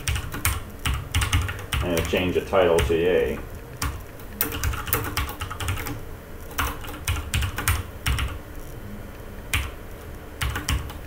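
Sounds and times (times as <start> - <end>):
typing on a keyboard: 0.0 - 2.2, 3.8 - 8.4, 10.4 - 11.0.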